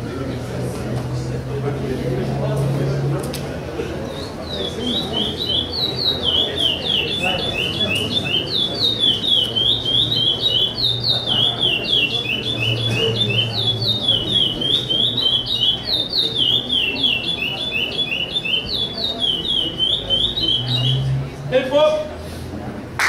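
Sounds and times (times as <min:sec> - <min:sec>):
blackbird singing: 0:04.0 - 0:21.2.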